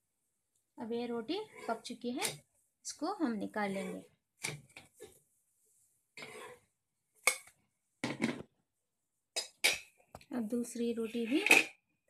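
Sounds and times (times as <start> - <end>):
spatula scraping a griddle: 1.2 - 2.4, 3.2 - 5.2, 6.2 - 6.7.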